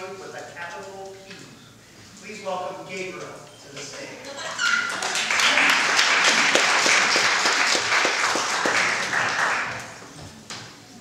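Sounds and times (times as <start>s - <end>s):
audience applauding: 4.6s - 10.2s.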